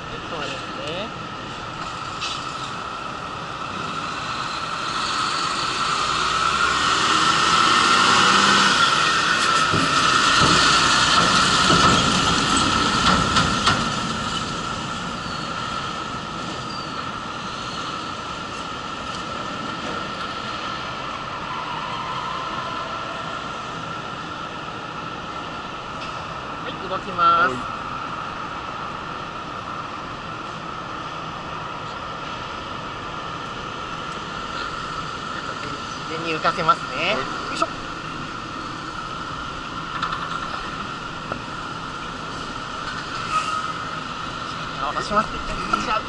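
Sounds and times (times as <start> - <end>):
truck driving: 0.0 - 46.0
wheels clanking on metal ramp: 9.3 - 15.4.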